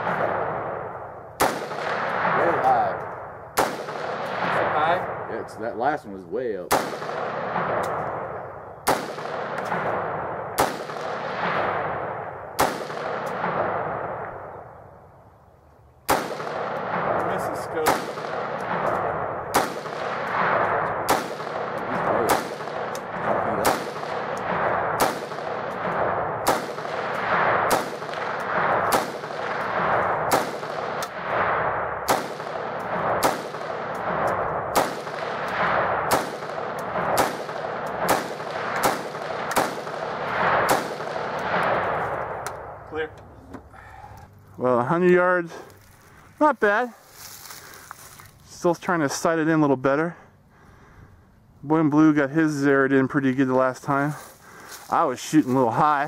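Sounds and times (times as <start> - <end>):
rifle shots with echo: 0.0 - 15.1, 16.0 - 43.2.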